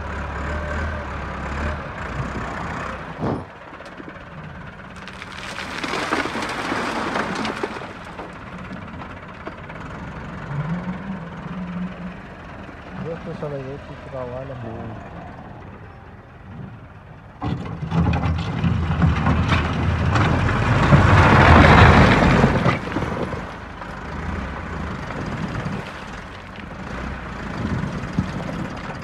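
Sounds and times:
tractor diesel engine under load: 0.0s - 29.0s
stones scraping and clattering: 5.0s - 8.4s.

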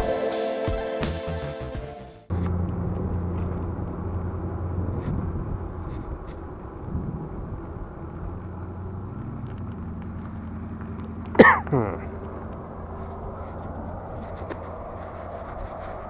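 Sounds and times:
bicycle road rumble: 2.3s - 16.0s
wind: 2.3s - 16.0s
person sneezing: 11.4s - 12.1s.

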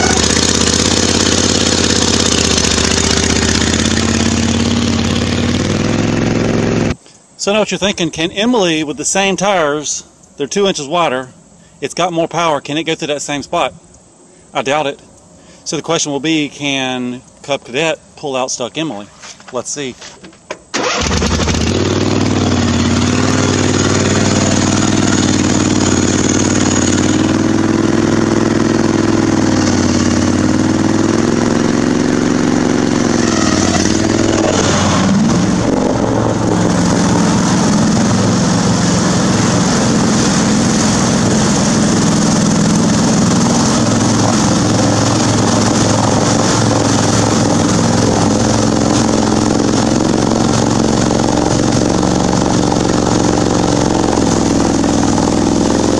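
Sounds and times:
riding lawn mower engine running: 0.0s - 7.0s, 20.2s - 55.9s.

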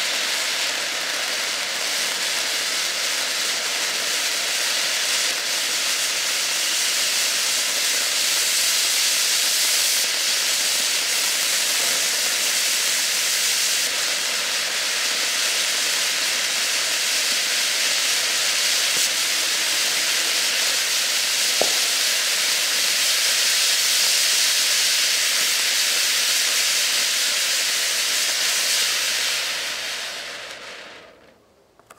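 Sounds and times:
firework fountain hissing: 0.0s - 31.4s
brief pop: 21.5s - 21.9s.

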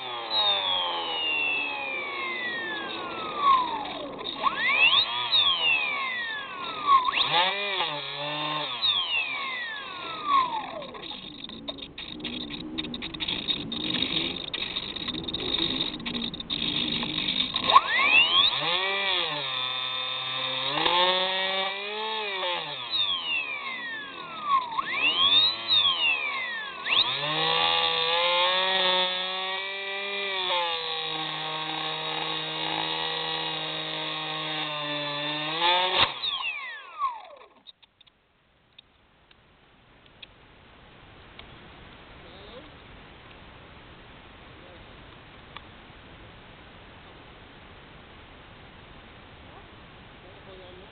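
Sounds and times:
model plane motor whining: 0.0s - 37.7s.

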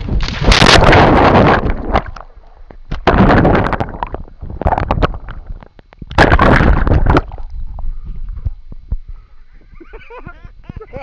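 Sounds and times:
crackling pops: 0.0s - 7.6s
water splashing against microphone: 0.0s - 8.6s.

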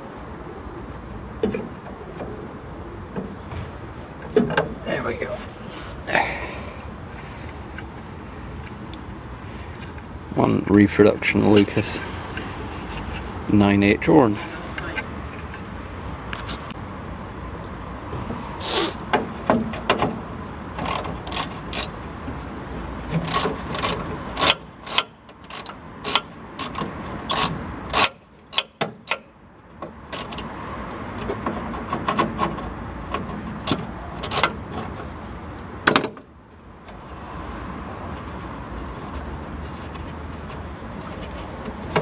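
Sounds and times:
hand tools clicking on metal: 20.8s - 21.9s, 23.2s - 29.3s, 33.2s - 34.6s.

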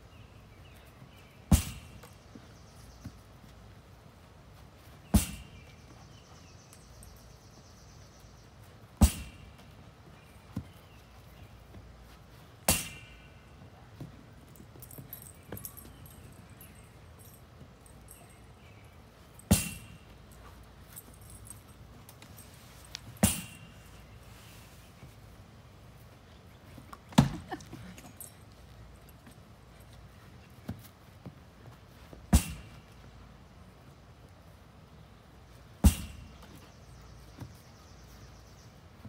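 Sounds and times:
ball smacking rebounder net: 1.5s - 2.0s, 5.2s - 5.6s, 9.0s - 9.6s, 12.7s - 13.2s, 19.5s - 20.0s, 23.2s - 23.7s, 32.3s - 32.8s, 35.8s - 36.4s.

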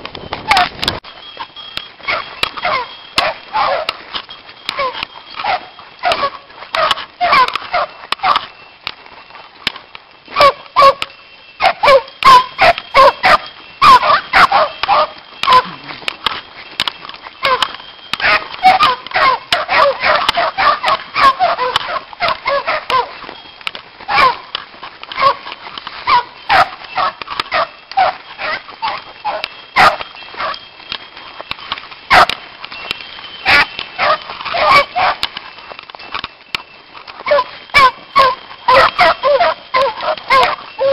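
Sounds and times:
hounds baying and barking: 0.4s - 40.9s.

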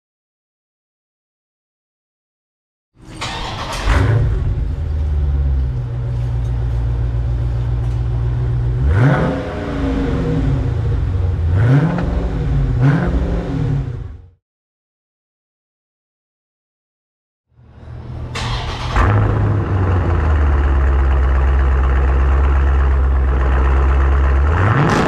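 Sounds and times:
car engine idling and revving: 3.2s - 14.4s, 17.6s - 25.0s.

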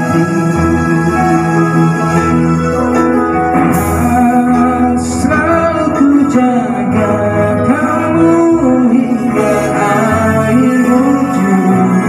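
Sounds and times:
recorded backing music: 0.0s - 12.0s
man singing into microphone: 3.7s - 12.0s.

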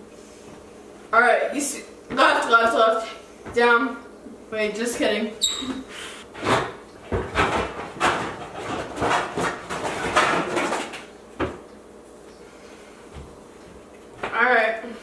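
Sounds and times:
baking pans knocking and clattering: 6.4s - 11.6s.

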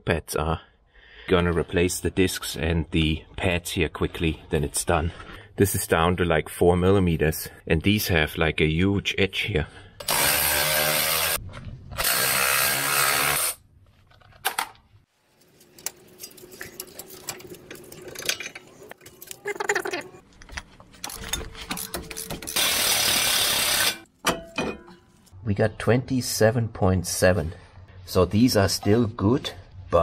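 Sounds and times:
power tool spinning bolts: 10.0s - 11.4s, 12.0s - 13.6s, 21.1s - 24.1s
parts clicking and knocking: 14.0s - 25.2s.

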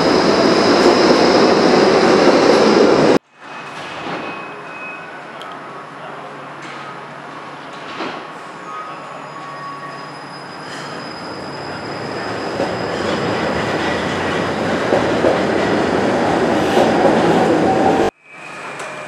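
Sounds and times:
tram rolling rumble: 0.0s - 3.2s, 10.0s - 19.0s
faint high wheel squeal: 3.5s - 5.8s, 8.6s - 13.4s.

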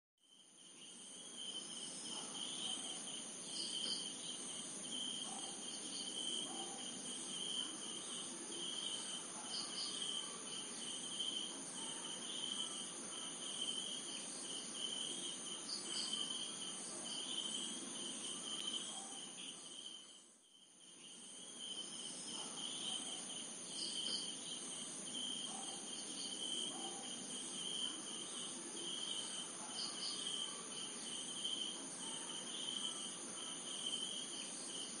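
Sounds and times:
crickets and insects trilling: 0.3s - 35.0s.

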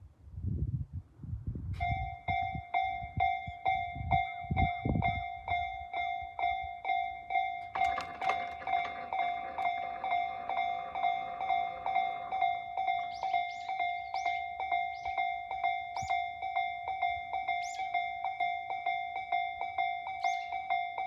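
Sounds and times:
level crossing electronic bell: 7.6s - 14.9s
overlapping chimes: 7.6s - 14.9s.

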